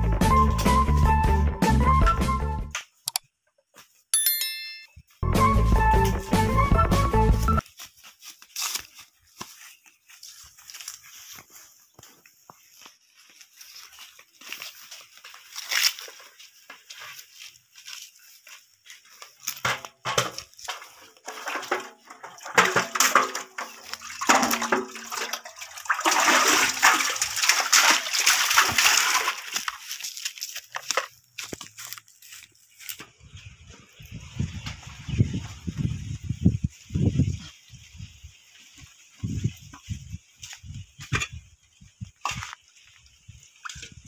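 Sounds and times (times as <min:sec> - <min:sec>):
water splashing and sloshing: 0:20.1 - 0:31.2.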